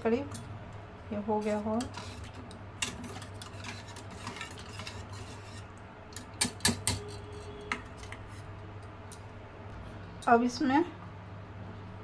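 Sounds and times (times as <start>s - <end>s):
wire whisk scraping metal pot: 1.3s - 8.6s.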